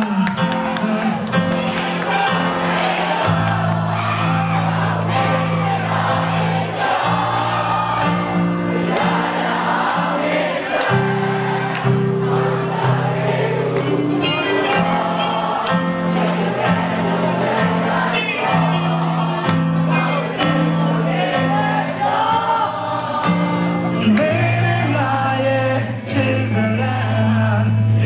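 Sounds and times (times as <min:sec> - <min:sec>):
person singing: 0:00.0 - 0:02.6, 0:12.5 - 0:15.9, 0:17.4 - 0:28.0
rock band playing: 0:00.0 - 0:27.6.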